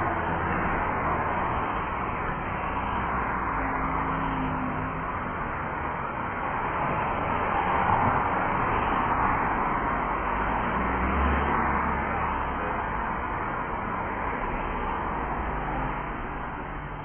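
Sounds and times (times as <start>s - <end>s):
cars passing close by: 0.0s - 17.0s.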